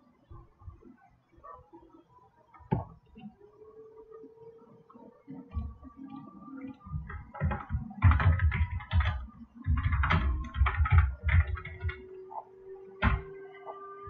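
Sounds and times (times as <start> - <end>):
keyboard typing: 6.6 - 12.4, 13.0 - 13.4.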